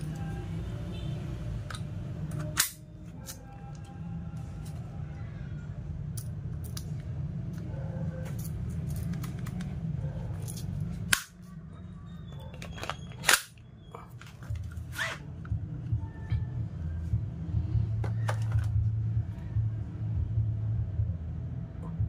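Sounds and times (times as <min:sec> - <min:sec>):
steady low hum: 0:13.6 - 0:22.0.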